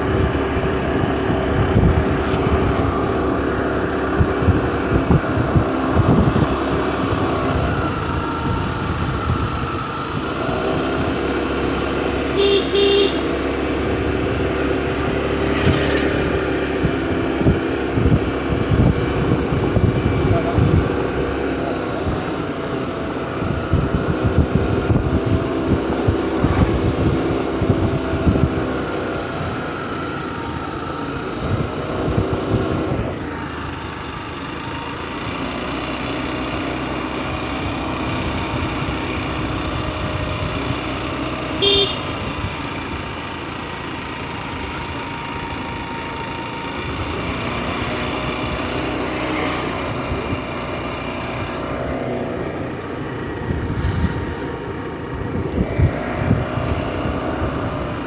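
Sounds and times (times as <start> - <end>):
wind buffeting microphone: 0.0 - 11.3, 13.9 - 21.4, 23.0 - 29.6, 31.4 - 33.4, 52.6 - 58.0
motorcycle engine running: 0.0 - 58.0
short horn toot: 12.4 - 13.3, 41.6 - 42.2.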